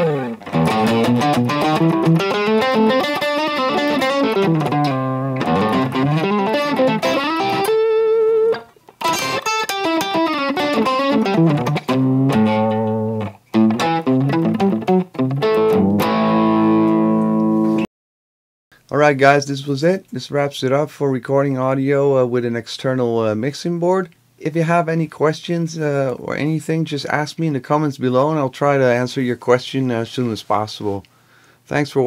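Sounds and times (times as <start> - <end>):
electric guitar runs and chord: 0.0 - 17.8.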